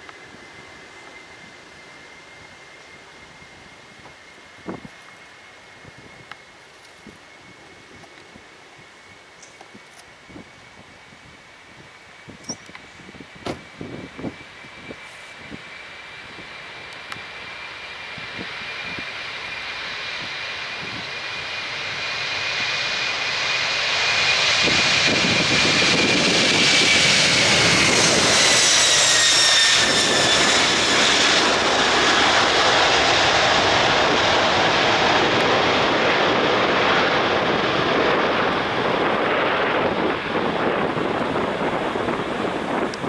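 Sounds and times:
jet engines roaring: 0.0s - 43.0s
high fan whine: 31.5s - 43.0s.

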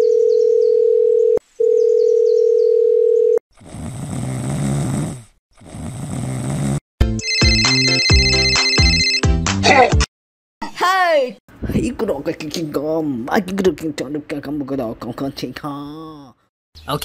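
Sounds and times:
phone ringback tone beeps: 0.0s - 3.4s, 7.2s - 9.2s
electronic ringtone melody: 7.2s - 9.3s.

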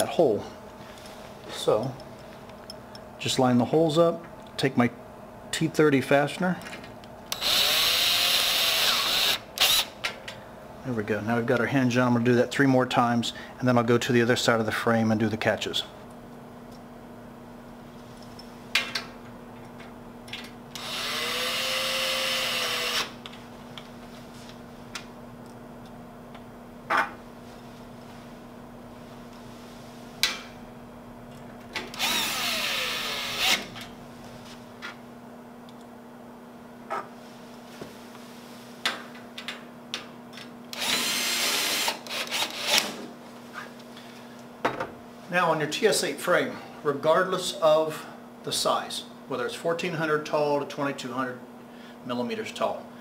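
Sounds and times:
cordless drill driving screw: 7.4s - 9.9s, 20.8s - 23.1s, 31.9s - 33.7s, 40.7s - 42.9s.

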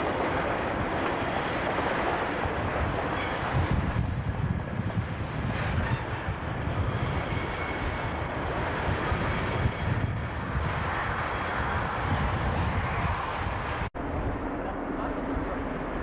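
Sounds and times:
diesel locomotive engine rumbling: 0.0s - 16.0s.

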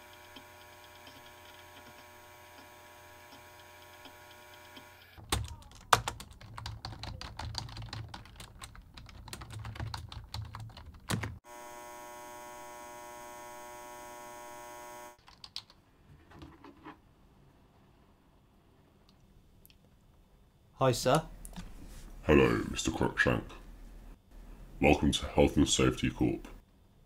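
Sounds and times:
electrical buzz: 0.0s - 5.2s, 11.4s - 15.2s
fast keyboard typing: 5.2s - 11.4s, 15.2s - 15.8s.

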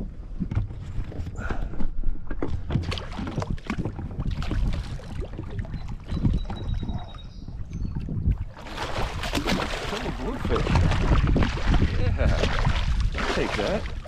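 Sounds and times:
water lapping against kayak hull: 0.0s - 14.0s.

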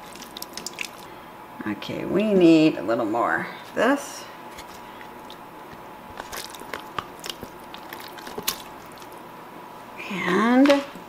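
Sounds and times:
soft squishing: 0.0s - 1.3s, 4.4s - 9.5s
faint steady high hum: 0.0s - 11.0s.

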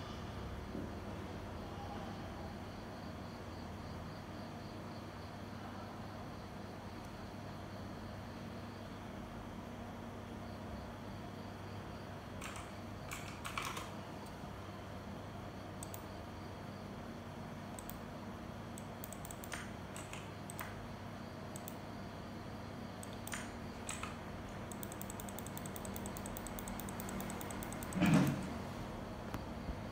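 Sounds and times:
typing on a keyboard: 12.4s - 14.0s, 18.8s - 20.8s, 23.0s - 28.1s.

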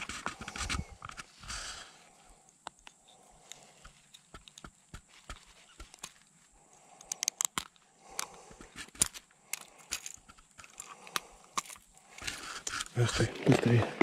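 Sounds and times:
metal hooks and forceps clicking: 7.0s - 13.0s.

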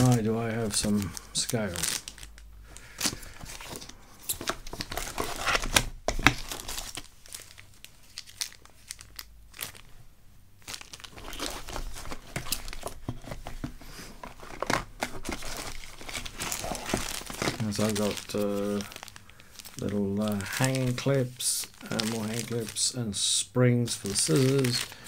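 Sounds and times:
hands rummaging through parts: 0.0s - 7.6s, 10.6s - 21.1s, 23.9s - 25.0s
crinkling and rustling: 0.0s - 23.0s, 23.8s - 25.0s.

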